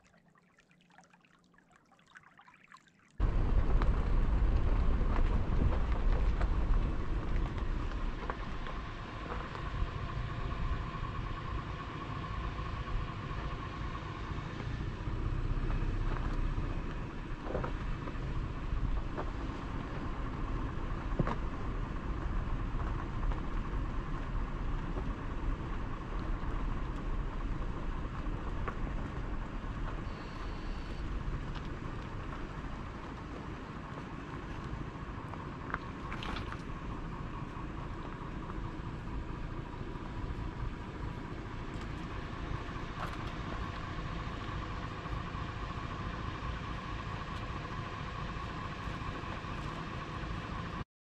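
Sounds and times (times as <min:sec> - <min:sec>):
vehicle engine rumbling: 0:03.2 - 0:50.8.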